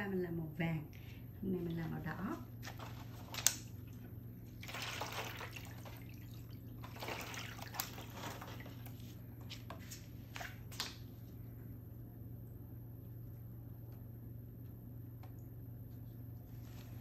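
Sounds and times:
liquid sloshing in foil tray: 0:01.6 - 0:11.0.

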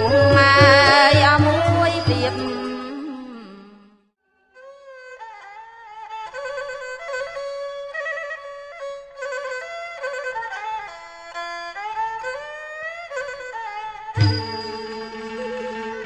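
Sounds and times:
bowed fiddle melody: 0:00.0 - 0:03.4, 0:04.6 - 0:16.0.

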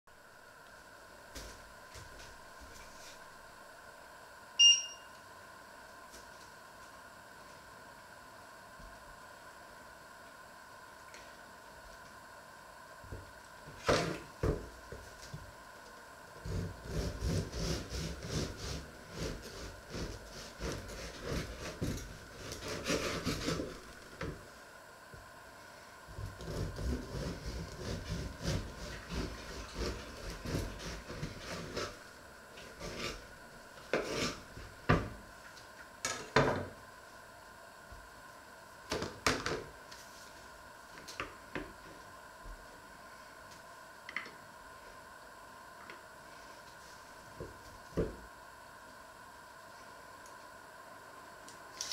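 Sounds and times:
knife sawing through bread: 0:16.4 - 0:23.8, 0:26.2 - 0:32.0, 0:32.7 - 0:33.3, 0:33.9 - 0:34.5.

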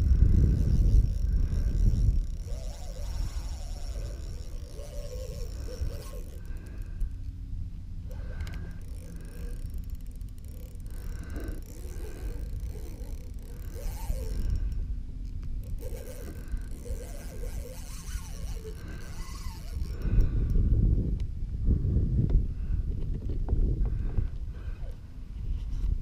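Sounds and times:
fishing reel scraping and clicking: 0:00.0 - 0:07.4, 0:08.0 - 0:20.6
wind rumble on microphone: 0:00.0 - 0:26.0.

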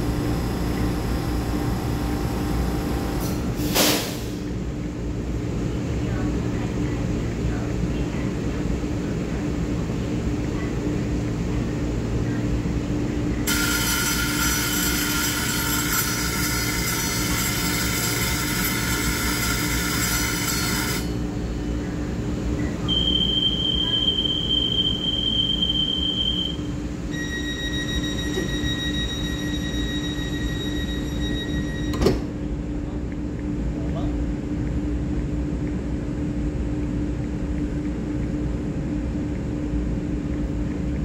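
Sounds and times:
train low rumble with hum: 0:00.0 - 0:41.0
ringing departure signal: 0:13.5 - 0:21.1, 0:22.8 - 0:32.1
beeping tone: 0:22.8 - 0:32.1
high steady whistle-like tone: 0:22.8 - 0:32.1.

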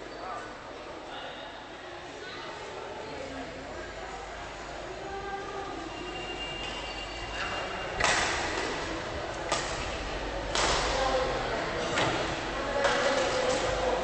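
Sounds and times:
murmur of voices: 0:00.0 - 0:14.0
rackets hitting shuttlecock: 0:08.0 - 0:08.9, 0:09.5 - 0:11.0.

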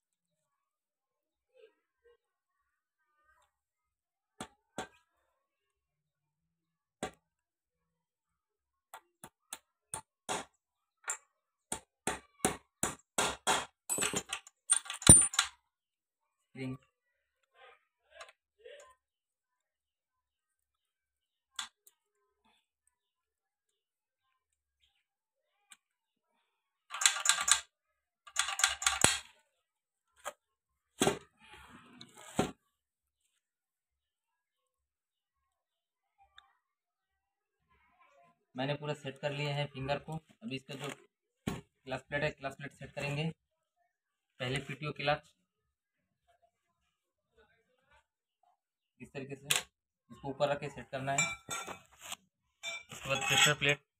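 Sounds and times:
metal parts clinking and rattling: 0:13.9 - 0:15.5, 0:26.9 - 0:27.6, 0:28.3 - 0:29.2, 0:51.2 - 0:51.8, 0:52.6 - 0:53.7.

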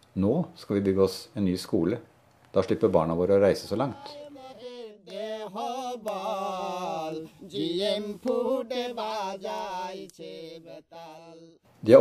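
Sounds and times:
man singing a chant-like melody: 0:03.6 - 0:11.6.

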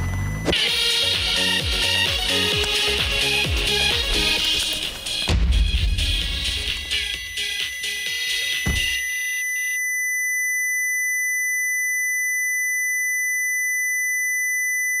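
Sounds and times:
electronic music: 0:00.4 - 0:09.2
high-pitched electronic ringing tone: 0:07.0 - 0:15.0.

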